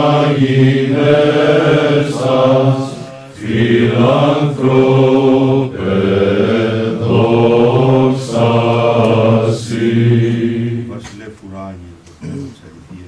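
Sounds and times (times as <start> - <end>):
men singing church chant: 0.0 - 11.2.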